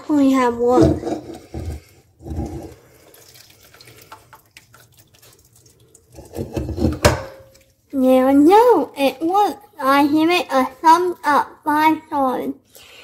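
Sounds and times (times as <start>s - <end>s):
water pouring and splashing into sink: 0.7s - 8.0s.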